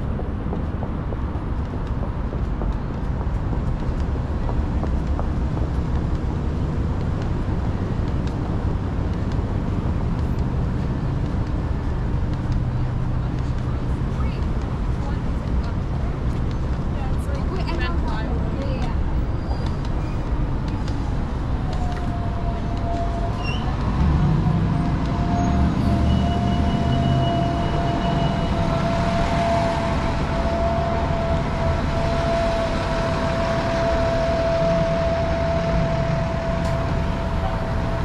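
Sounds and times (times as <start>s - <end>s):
passing vehicles rumble: 0.0s - 38.0s
steady whine: 26.1s - 38.0s.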